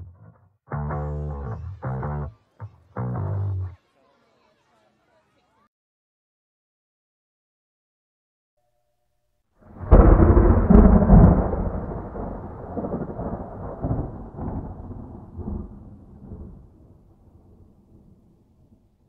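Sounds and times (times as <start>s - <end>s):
thunder cracks: 9.6s - 18.9s
thunder rolling rumble: 9.7s - 18.9s.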